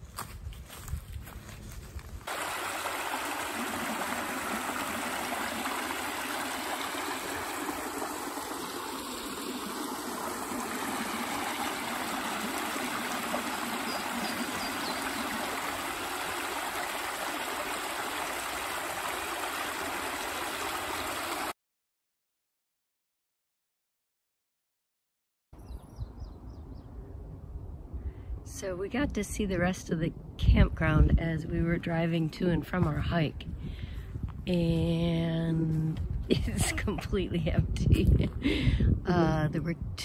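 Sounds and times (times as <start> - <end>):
creek water rushing over stones: 2.3 - 21.5.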